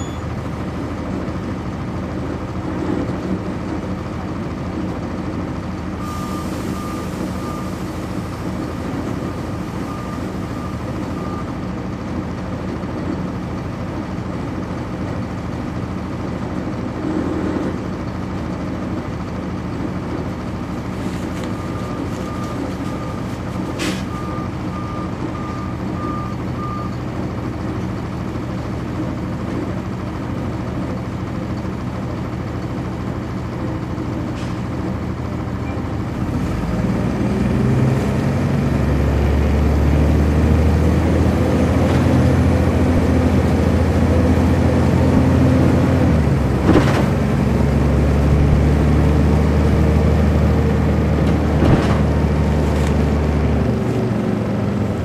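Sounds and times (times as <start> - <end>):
high beeps: 0.0 - 0.3
bus diesel engine: 0.0 - 55.0.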